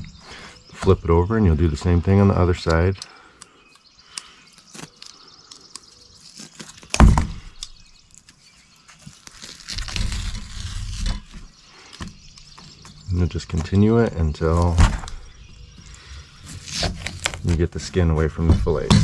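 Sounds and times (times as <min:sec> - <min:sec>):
small handling clicks: 0:02.6 - 0:06.0
rough rustling of skin tearing: 0:03.4 - 0:12.6, 0:16.4 - 0:17.7.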